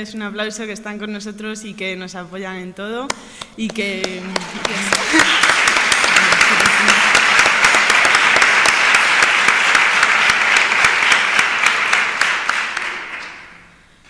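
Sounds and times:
audience applauding: 4.0s - 13.7s.

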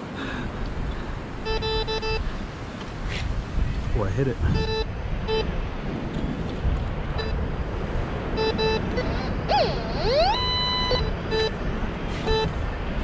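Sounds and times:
surf and wind hiss: 0.0s - 13.0s
metal detector beeps: 1.4s - 2.2s, 4.5s - 5.5s, 7.2s - 7.4s, 8.4s - 12.6s
metal detector long tone: 8.4s - 11.6s, 12.2s - 12.5s.

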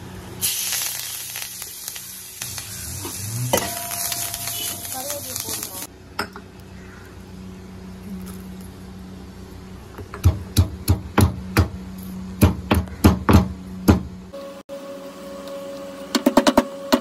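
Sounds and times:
stone pestle pounding in mortar: 10.2s - 11.8s, 12.4s - 14.1s.

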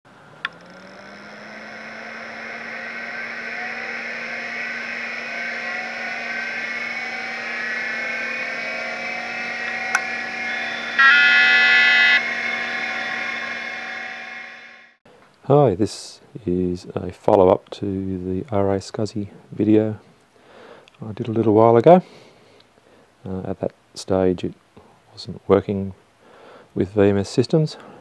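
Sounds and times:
motor-like hum with whines: 0.1s - 15.0s
loud electronic beep: 0.8s - 15.0s.

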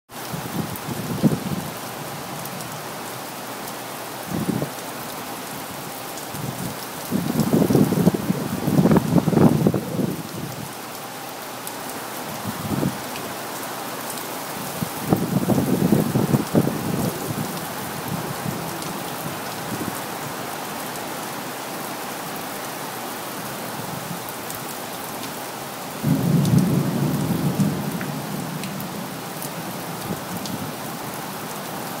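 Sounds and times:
heavy rain downpour: 0.1s - 32.0s
rolling thunder: 26.0s - 29.0s.

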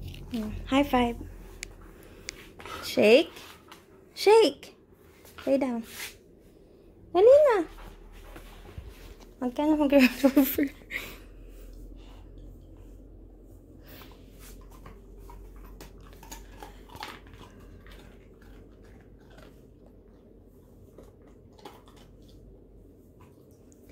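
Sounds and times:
dog chewing a treat: 14.6s - 22.6s.

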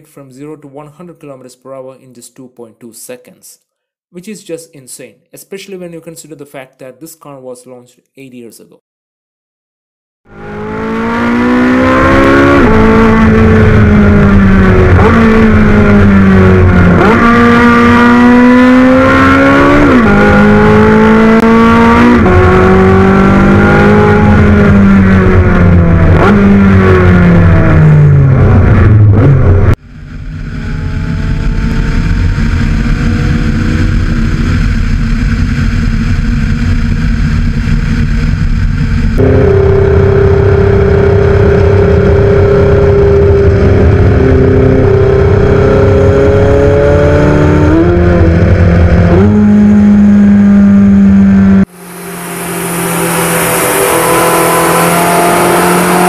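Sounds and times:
sports car engine revving: 10.3s - 56.0s.

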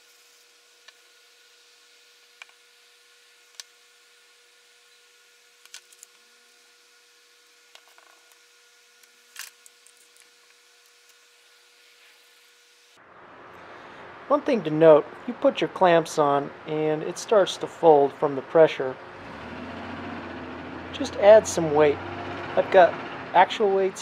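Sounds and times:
faint hum: 0.1s - 19.3s.

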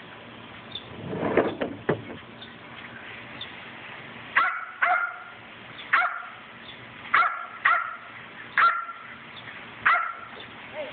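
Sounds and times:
small dog barking: 4.4s - 6.4s, 7.1s - 9.0s, 9.8s - 10.3s.

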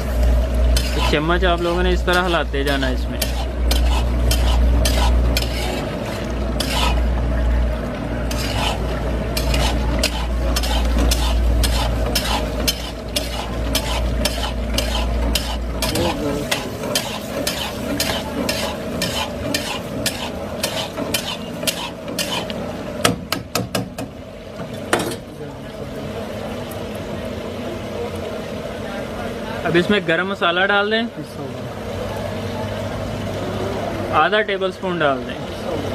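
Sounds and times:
food sizzling in pan: 0.0s - 23.1s
spoon scraping pan: 0.6s - 7.2s, 8.2s - 22.6s.

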